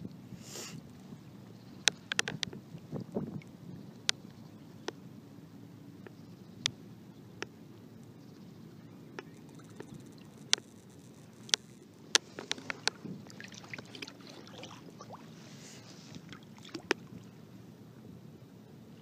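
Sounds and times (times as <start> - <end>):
shallow water lapping and splashing: 9.2 - 17.6
fish splashing at the surface: 12.4 - 17.2.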